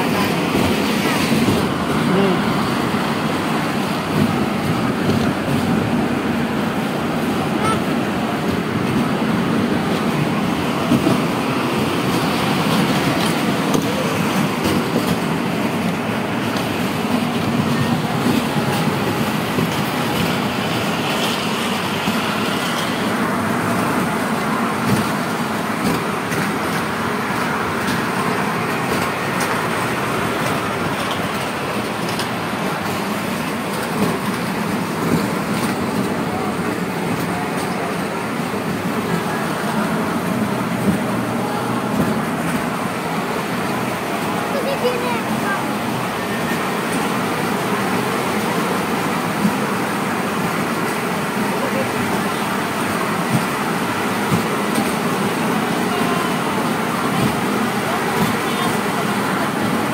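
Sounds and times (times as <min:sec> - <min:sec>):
small train wheels rumbling: 0:00.0 - 0:59.9.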